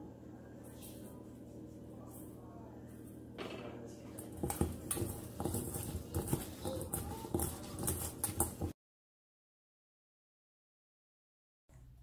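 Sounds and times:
vegetable sticks rattling in metal bowl: 4.1 - 8.7.

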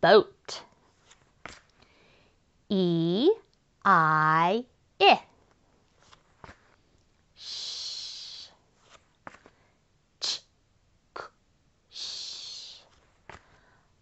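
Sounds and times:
woman making ch and k sounds: 2.7 - 5.3, 7.4 - 8.6, 10.2 - 10.5, 11.2 - 12.9
woman making sh hiss: 7.4 - 8.6, 11.9 - 13.0.

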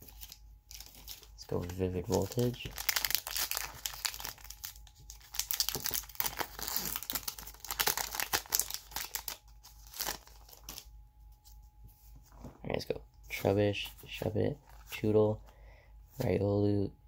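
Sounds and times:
foil wrapper crinkling: 0.0 - 10.9.

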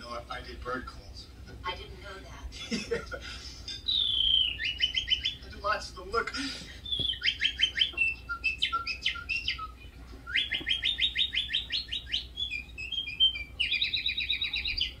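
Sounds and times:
man imitating bird calls: 3.8 - 5.5, 6.7 - 15.0.

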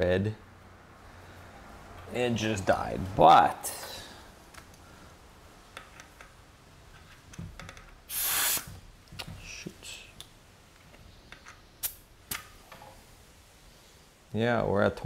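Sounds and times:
air hissing from tyre valve: 8.1 - 8.8.

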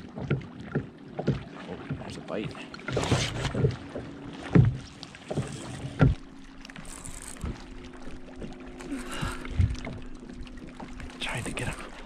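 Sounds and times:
fishing reel winding hum: 5.4 - 9.4.

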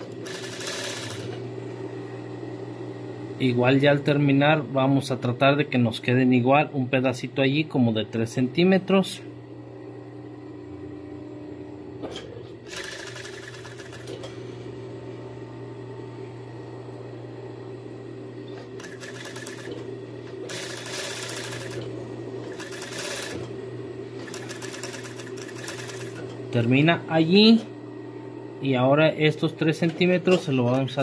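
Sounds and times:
sewing machine stitching: 0.0 - 1.4, 12.7 - 14.2, 18.8 - 23.5, 24.2 - 26.3
sewing machine motor hum: 0.0 - 3.3, 10.7 - 15.5, 18.1 - 26.8.

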